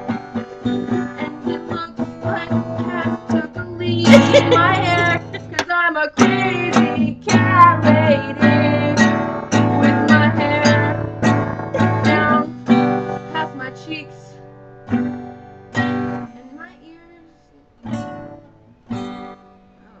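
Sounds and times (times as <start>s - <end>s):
acoustic guitar strumming: 0.0s - 16.4s, 17.8s - 19.8s
girl singing: 0.3s - 14.4s, 16.2s - 17.9s.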